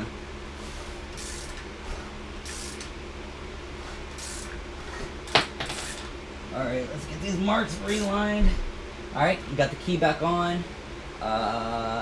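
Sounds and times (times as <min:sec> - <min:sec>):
compressed air hissing puffs: 0:00.6 - 0:02.9, 0:03.7 - 0:06.1.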